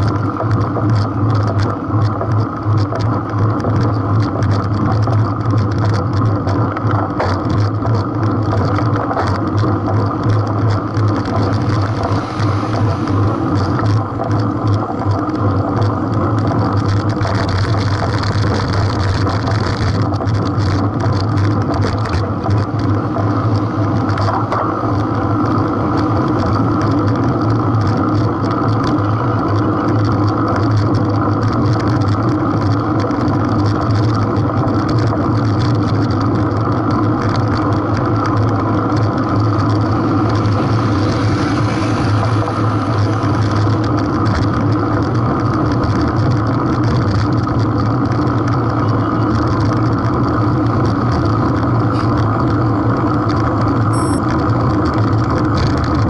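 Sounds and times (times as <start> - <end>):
low hum: 0.0 - 33.1, 48.9 - 56.0
road rumble: 0.0 - 56.0
wind: 0.0 - 56.0.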